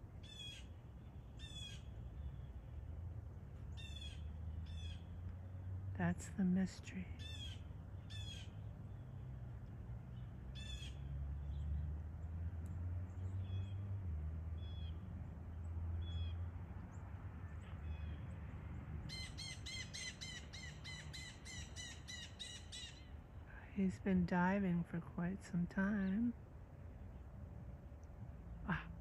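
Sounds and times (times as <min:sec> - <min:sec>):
harsh bird calls: 0:00.2 - 0:00.7, 0:03.7 - 0:05.1, 0:07.2 - 0:09.1, 0:10.2 - 0:11.7, 0:19.1 - 0:23.2
steady low rumble: 0:23.0 - 0:29.0.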